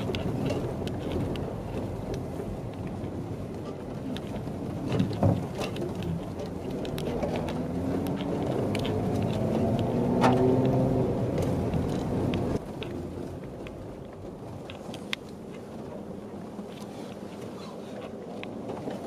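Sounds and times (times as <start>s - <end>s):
small clicks and rattles: 0.0s - 10.8s
cabin road noise: 0.0s - 19.0s
car engine running: 0.0s - 19.0s.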